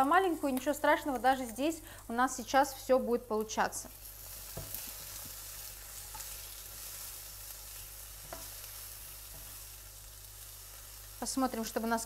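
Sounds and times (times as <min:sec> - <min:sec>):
zucchini sizzling in oil: 0:00.0 - 0:12.0
spatula tapping pan: 0:04.5 - 0:05.4, 0:08.2 - 0:09.6.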